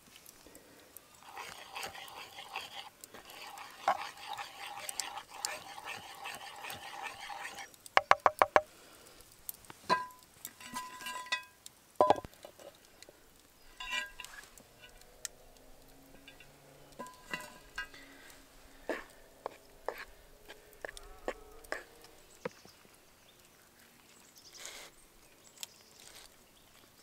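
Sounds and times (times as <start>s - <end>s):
metal utensils clinking: 9.9s - 12.3s, 13.8s - 15.0s, 16.1s - 19.2s.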